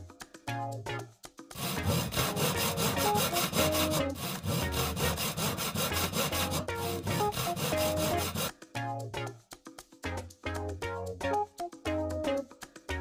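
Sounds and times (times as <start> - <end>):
sandpaper rubbing on wood: 1.5 - 8.5.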